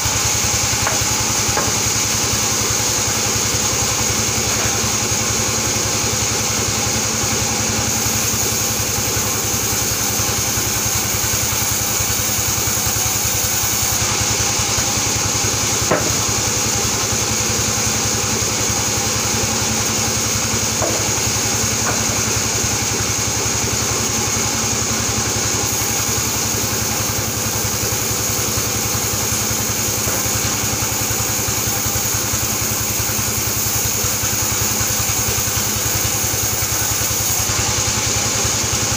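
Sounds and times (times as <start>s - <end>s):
band saw mill whining: 0.0s - 38.9s
sharp knock: 15.9s - 16.3s.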